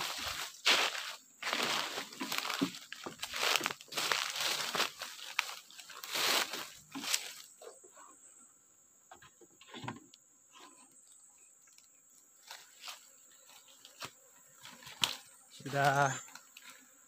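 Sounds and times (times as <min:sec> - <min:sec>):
footsteps crunching dry leaves: 0:00.0 - 0:07.6, 0:12.4 - 0:16.8.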